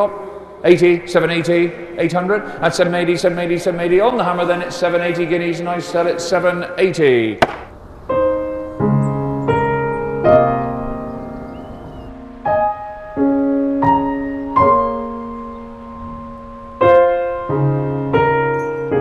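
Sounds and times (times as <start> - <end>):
slow piano chords: 7.7 - 19.0.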